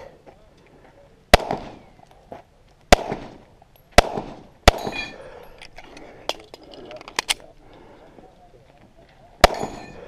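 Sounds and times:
pistol shots with echo: 1.3s - 1.9s, 2.9s - 3.4s, 4.0s - 5.2s, 9.4s - 10.0s.

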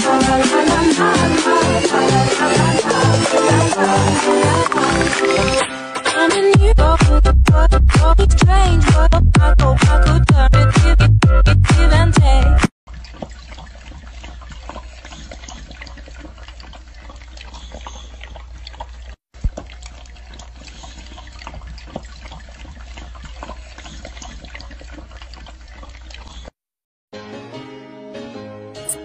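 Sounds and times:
animal lapping from metal bowl: 12.9s - 26.6s.

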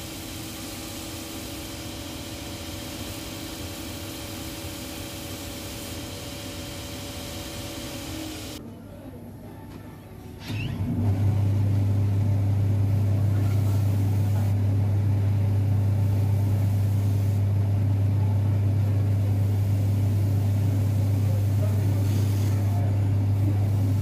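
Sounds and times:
electric motor humming: 0.0s - 8.6s.

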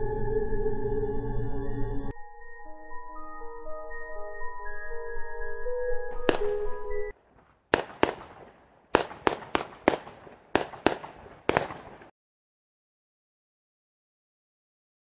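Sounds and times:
soft ambient music with bell tones: 0.0s - 7.1s
sharp echoing bangs: 6.1s - 12.1s.

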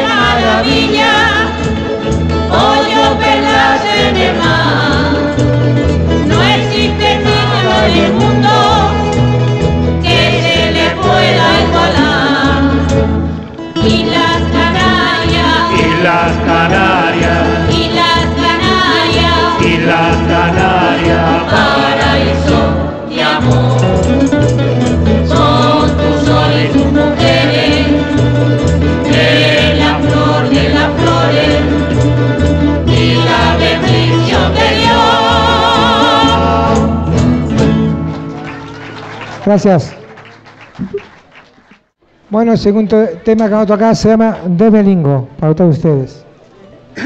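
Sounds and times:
group singing in chorus: 0.0s - 37.5s
instrumental accompaniment with bass: 0.0s - 42.8s.

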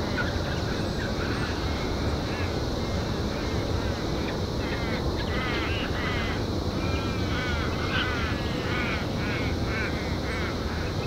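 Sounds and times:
birds making harsh calls: 4.6s - 11.0s.

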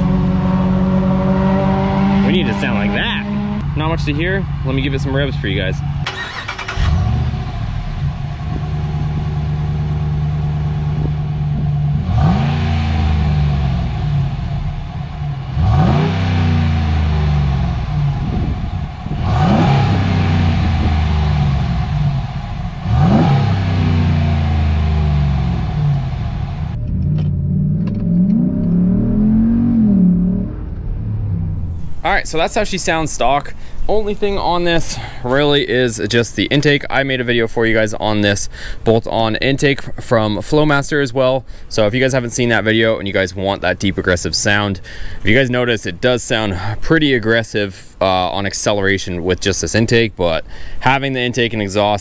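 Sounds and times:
engine accelerating heard from cab: 0.0s - 32.0s
engine idling and revving: 0.0s - 32.0s.

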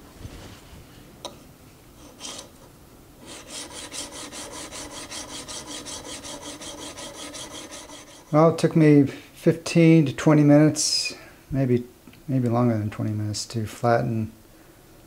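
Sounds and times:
blade rasping on sharpening plate: 3.2s - 8.3s.

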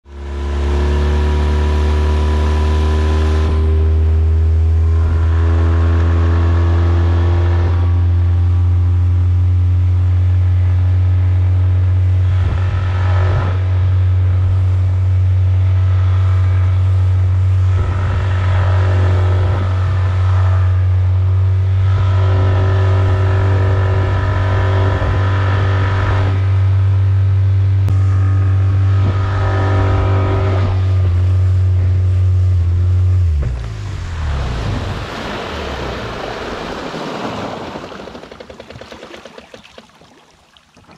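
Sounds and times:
outboard engine running: 0.1s - 40.9s
wind and water rushing: 33.3s - 40.9s.

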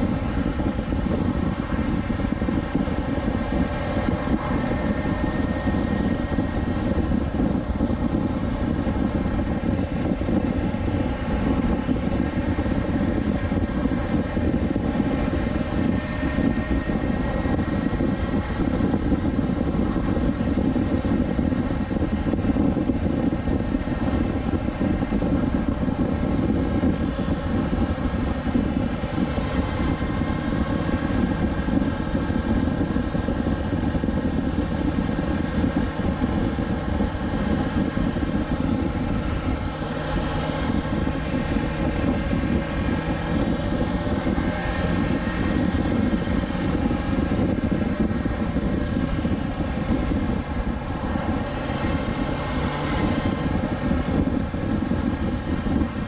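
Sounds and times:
motorcycle engine cruising: 0.0s - 56.0s.

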